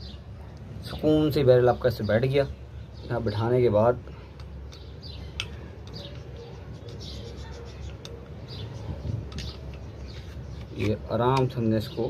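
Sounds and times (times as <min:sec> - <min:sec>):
birds chirping: 0:00.0 - 0:12.0
pistol parts clicking: 0:04.3 - 0:06.2, 0:09.3 - 0:11.6.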